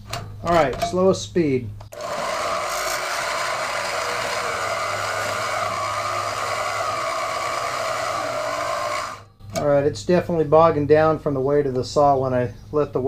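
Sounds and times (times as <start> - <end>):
bandsaw cutting steel: 1.9 - 9.3.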